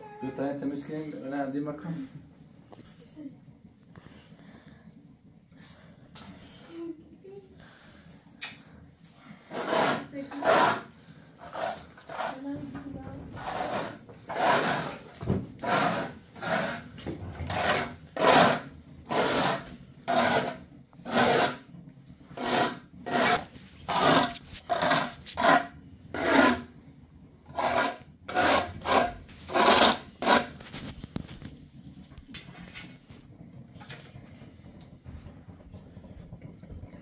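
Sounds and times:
rasping scrapes on hard surface: 9.4s - 26.8s, 27.5s - 31.5s.

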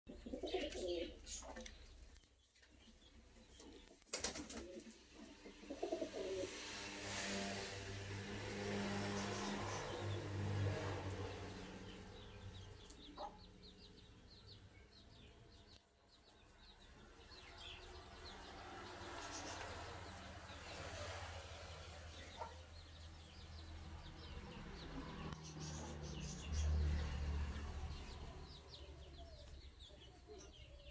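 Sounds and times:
pigeons cooing: 0.1s - 1.8s, 3.6s - 6.9s.

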